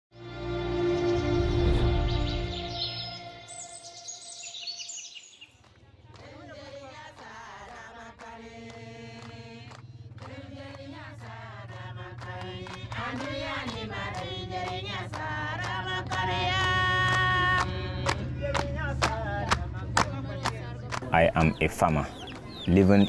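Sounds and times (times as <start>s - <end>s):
women singing together: 5.9s - 21.1s
sharp hand claps: 12.2s - 21.6s.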